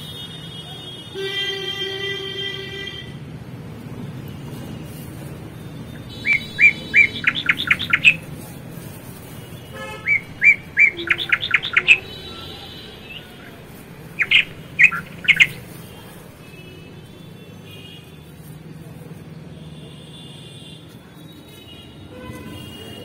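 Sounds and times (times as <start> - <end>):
bird singing: 5.9 - 8.5, 9.8 - 15.8.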